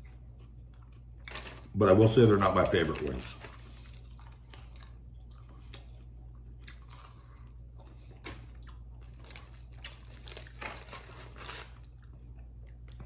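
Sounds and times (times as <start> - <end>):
man chewing food: 0.0 - 1.7, 3.3 - 13.0
small crunches: 0.0 - 13.0.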